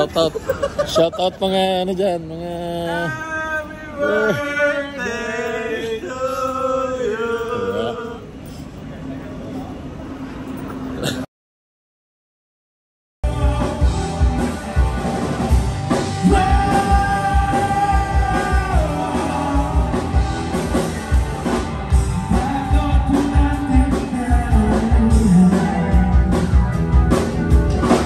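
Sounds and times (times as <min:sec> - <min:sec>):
drums: 0:13.2 - 0:28.0.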